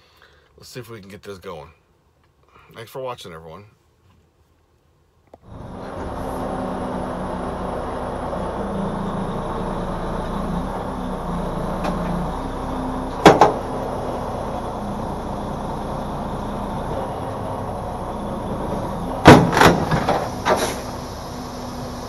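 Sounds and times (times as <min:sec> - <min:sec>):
diesel truck engine running: 0:05.4 - 0:22.0
loud sharp clunk: 0:13.2 - 0:13.6, 0:19.2 - 0:20.9.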